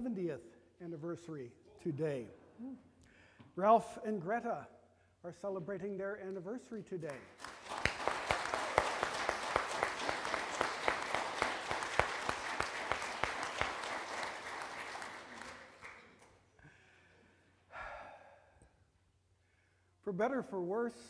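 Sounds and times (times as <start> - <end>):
congregation applauding: 7.4 - 16.4.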